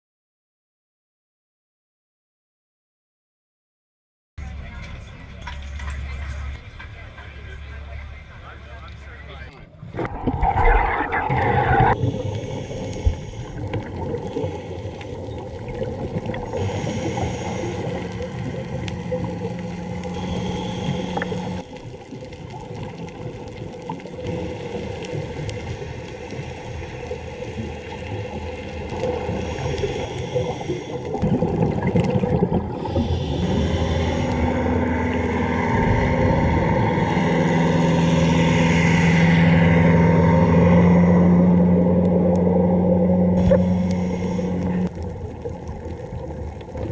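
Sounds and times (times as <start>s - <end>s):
underwater engine hum: 4.4s - 46.9s
water wash: 9.9s - 46.9s.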